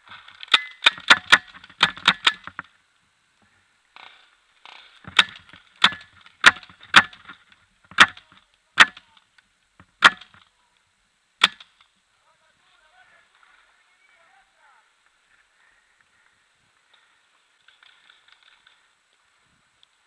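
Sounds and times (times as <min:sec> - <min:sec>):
paintball marker shots: 0:09.8 - 0:10.5, 0:11.4 - 0:11.8.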